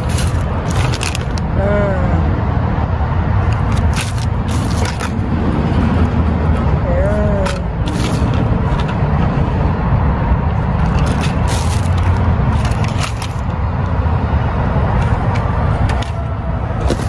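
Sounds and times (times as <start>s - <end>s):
blister packs clicking: 0.0s - 1.5s, 3.4s - 5.2s, 7.4s - 9.0s, 10.8s - 13.6s
plastic bags crinkling: 0.0s - 1.5s, 3.4s - 5.2s, 7.5s - 8.9s, 10.7s - 13.5s
low vehicle rumble: 0.0s - 17.0s.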